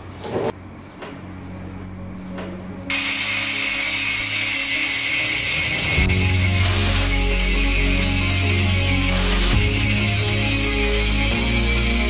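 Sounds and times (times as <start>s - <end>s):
angle grinder grinding steel: 2.9s - 12.0s.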